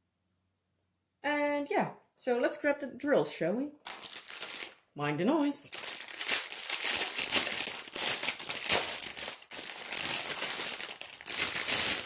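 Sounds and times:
plastic packaging crinkling: 3.8 - 4.8, 5.6 - 12.0.

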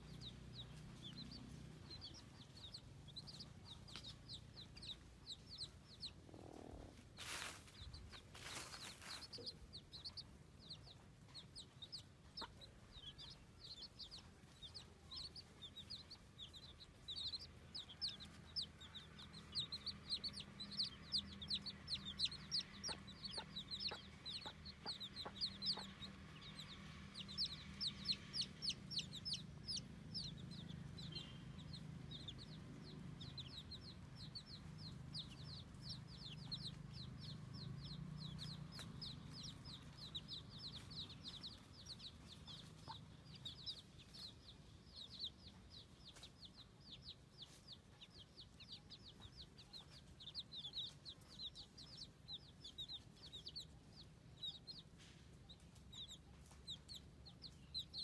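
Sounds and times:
baby chicks peeping: 0.0 - 58.0
faint low hum: 0.0 - 58.0.

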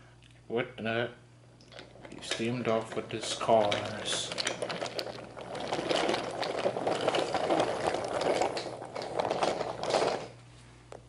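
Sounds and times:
wooden toy train rattling: 1.7 - 10.4.

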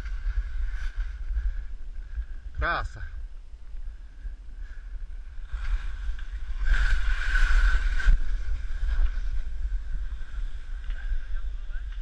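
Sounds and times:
wind rumble on microphone: 0.0 - 12.0
skis scraping over snow: 5.5 - 12.0.

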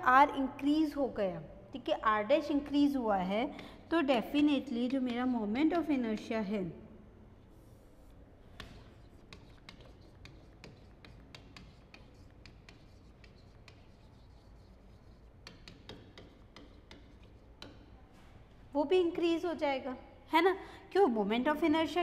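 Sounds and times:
chalk writing on a chalkboard: 7.5 - 18.3.

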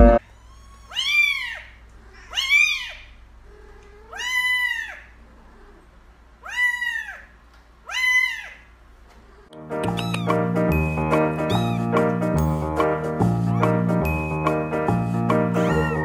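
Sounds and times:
kittens meowing: 0.2 - 10.5, 11.4 - 12.6, 13.5 - 14.0, 15.3 - 16.0.

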